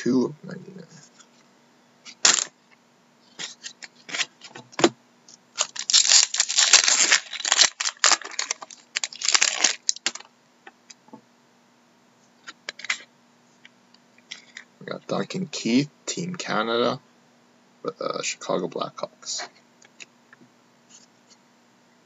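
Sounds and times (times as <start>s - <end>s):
foil wrapper tearing and crinkling: 2.2s - 2.5s, 5.5s - 10.3s.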